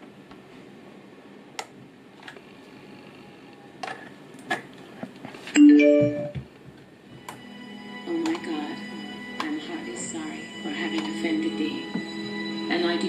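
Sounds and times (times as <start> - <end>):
speaker chime: 5.6 - 6.4, 7.4 - 13.0.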